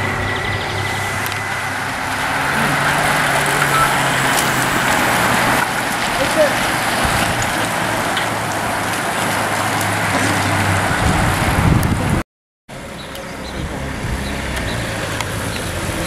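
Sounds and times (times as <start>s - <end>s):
wind on microphone: 0.0s - 12.2s, 13.4s - 16.0s
motorcycle engine hum: 0.0s - 16.0s.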